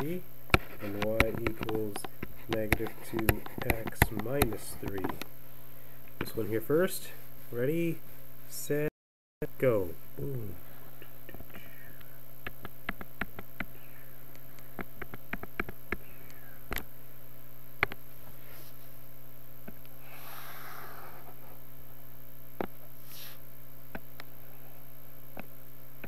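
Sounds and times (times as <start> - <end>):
computer mouse clicks: 0.0 - 5.3
low electrical hum: 0.0 - 26.0
soft scratchy rustle: 18.1 - 19.0.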